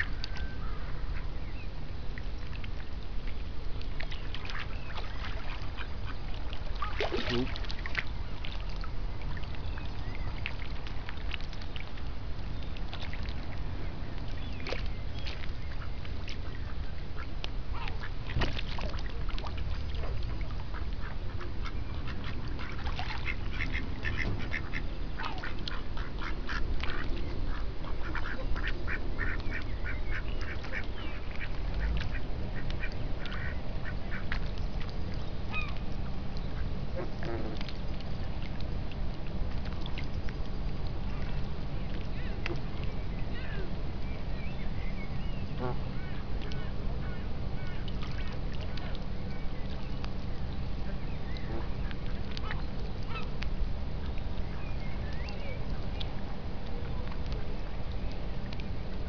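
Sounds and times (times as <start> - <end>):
steady low rumble: 0.0 - 59.0
ducks quacking: 20.3 - 34.4, 36.9 - 37.7, 45.6 - 48.8.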